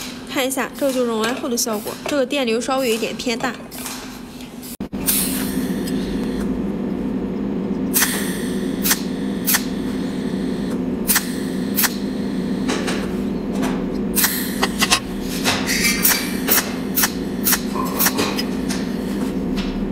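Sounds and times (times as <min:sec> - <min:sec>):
steady electrical hum: 0:00.0 - 0:19.9
welding arc snaps: 0:07.9 - 0:13.0, 0:14.2 - 0:15.1, 0:16.0 - 0:18.9.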